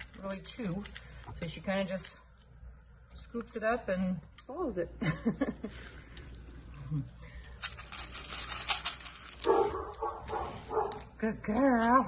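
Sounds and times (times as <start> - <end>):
kibble rattling in metal bowl: 7.5 - 12.0.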